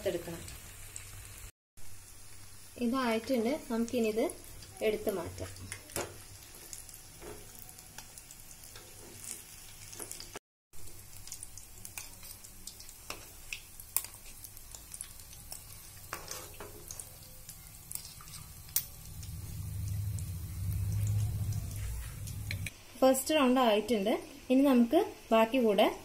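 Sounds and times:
hot oil sizzling with crackles: 0.0 - 26.0
low hum: 18.3 - 22.7.

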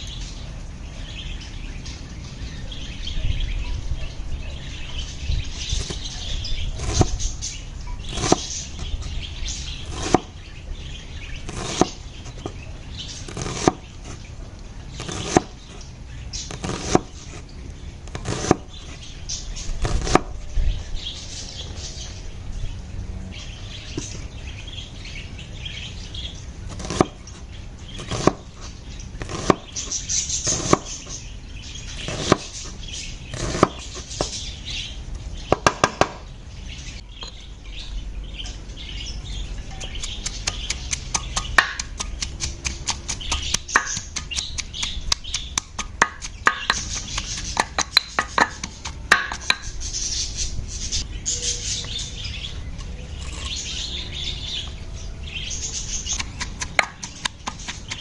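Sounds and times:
birds chirping: 0.0 - 58.0
pestle pounding in stone mortar: 13.3 - 13.9, 15.0 - 15.7, 18.1 - 18.7, 33.3 - 34.4, 35.5 - 36.2, 39.8 - 49.8, 56.1 - 58.0.

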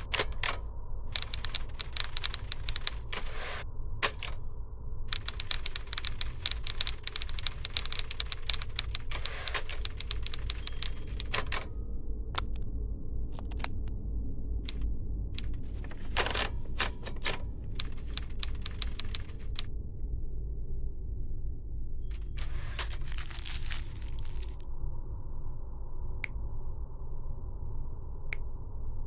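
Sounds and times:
keyboard typing keystrokes: 0.0 - 3.1, 5.1 - 11.7, 16.2 - 19.7
steady low hum: 0.0 - 29.0.

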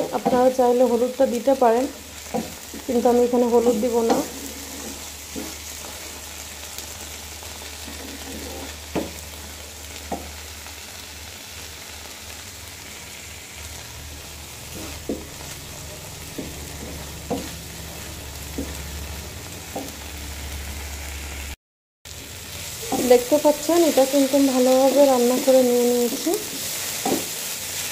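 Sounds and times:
paste sizzling in frying pan: 0.0 - 27.9
spatula scraping against pan: 3.6 - 6.2, 7.8 - 8.9.

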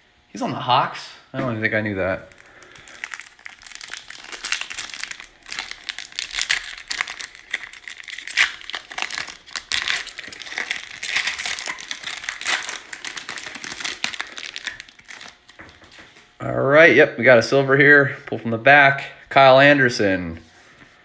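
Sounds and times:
foil wrapper crinkling: 2.1 - 16.3.

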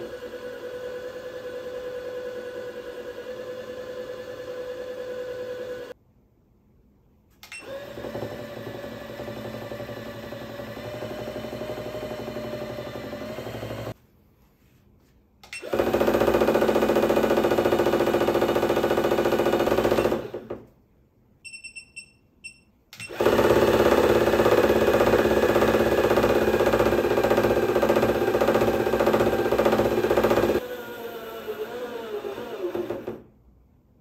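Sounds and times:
short electronic beeps: 21.4 - 22.8.

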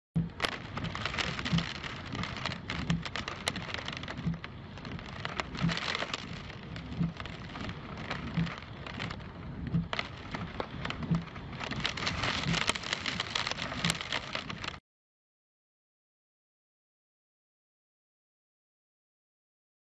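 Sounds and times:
heavy rain: 0.2 - 14.8
hurricane wind: 0.2 - 14.8
rain clicking on microphone: 0.2 - 14.8.

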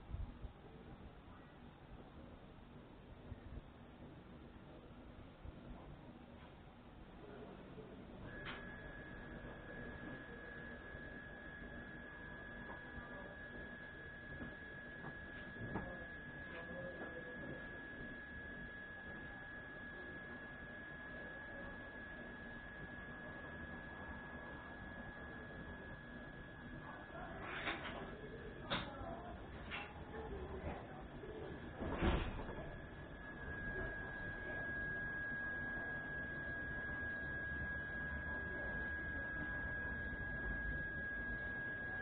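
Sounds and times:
steady high-pitched tone: 7.2 - 42.0
fainter higher tone: 8.3 - 29.2, 30.9 - 42.0.

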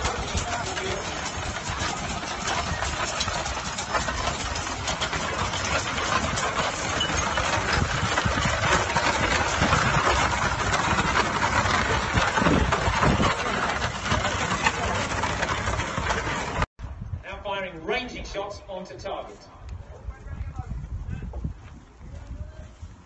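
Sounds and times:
hooves on gravel: 0.0 - 16.7, 17.9 - 23.0
wooden wheels crunching on gravel: 0.0 - 16.7.

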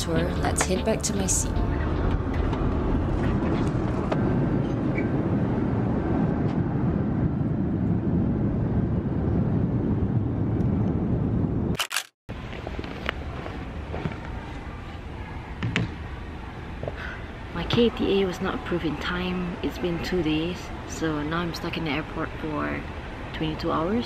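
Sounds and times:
airliner cabin drone: 0.0 - 11.7.

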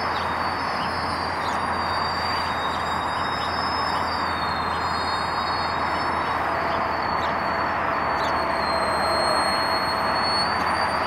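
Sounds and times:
high wheel squeals: 0.0 - 11.0
train running with low hum: 0.0 - 11.0.

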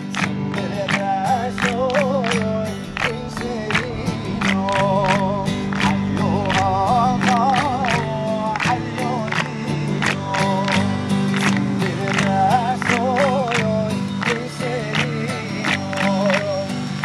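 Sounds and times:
acoustic guitar: 0.0 - 17.0
group clapping hands: 0.0 - 17.0
person singing folk song: 0.0 - 17.0.

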